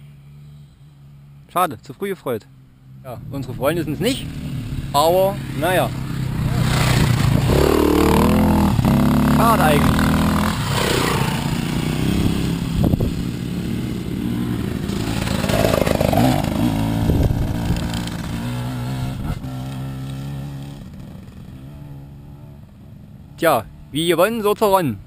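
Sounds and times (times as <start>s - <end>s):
dirt bike engine riding off: 3.2s - 21.9s.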